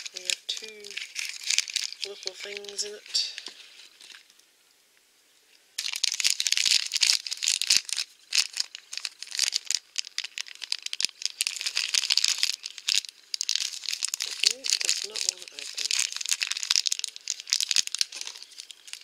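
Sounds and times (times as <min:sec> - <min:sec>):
plastic wrapper crinkling: 0:00.0 - 0:04.4, 0:05.8 - 0:19.0.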